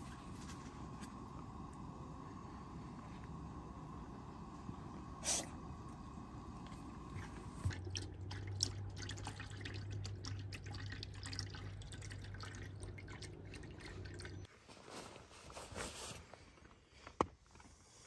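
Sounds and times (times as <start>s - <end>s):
low steady hum: 0.0s - 14.5s
water dripping into basin: 7.7s - 14.5s.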